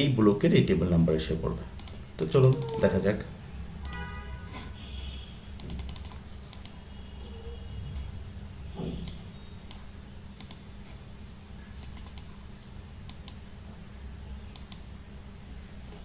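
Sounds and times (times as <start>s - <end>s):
mouse and keyboard clicks: 5.6s - 6.8s, 10.4s - 10.6s, 11.8s - 12.3s, 14.5s - 14.9s.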